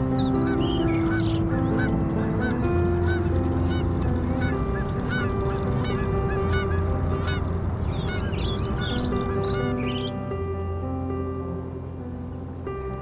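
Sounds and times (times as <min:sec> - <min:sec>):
geese honking: 0:00.2 - 0:10.1.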